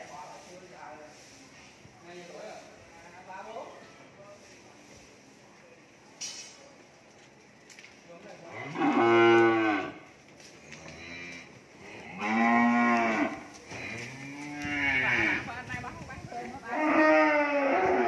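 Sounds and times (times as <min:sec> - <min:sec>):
cattle mooing: 0:08.6 - 0:10.0, 0:12.0 - 0:15.4, 0:16.7 - 0:18.0.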